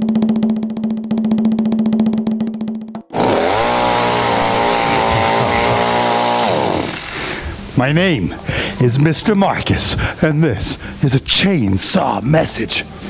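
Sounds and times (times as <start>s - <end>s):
chainsaw at high revs: 3.1s - 7.5s.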